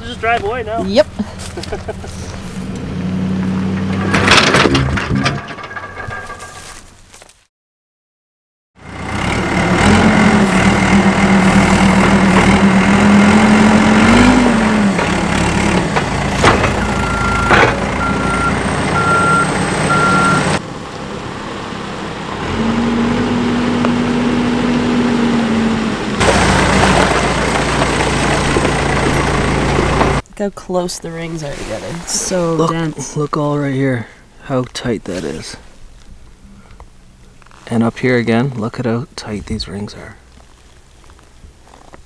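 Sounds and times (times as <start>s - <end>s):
diesel engine running and revving: 0.0s - 5.1s, 8.8s - 30.2s
backup alarm beeping: 16.8s - 20.6s.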